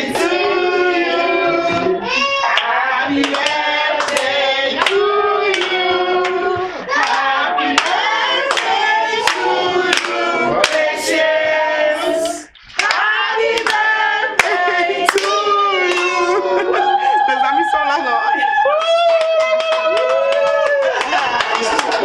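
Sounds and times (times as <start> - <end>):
group of voices singing: 0.0 - 18.7
rhythmic hand clapping: 2.5 - 16.3, 18.6 - 22.0.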